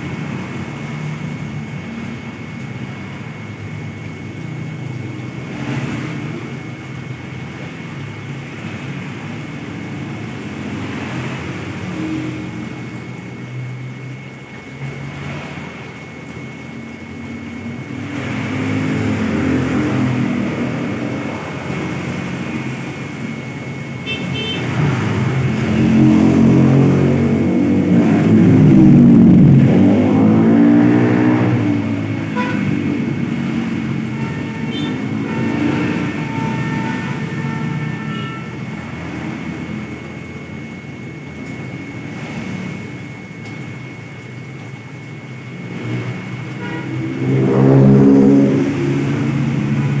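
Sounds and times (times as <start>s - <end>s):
steady traffic hum: 0.0s - 50.0s
vehicles passing on road: 0.0s - 50.0s.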